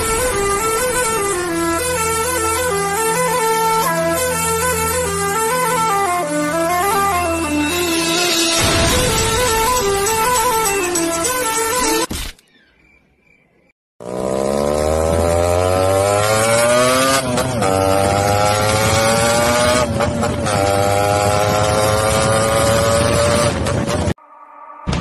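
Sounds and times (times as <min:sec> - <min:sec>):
motorcycle engine revving: 0:14.0 - 0:24.2.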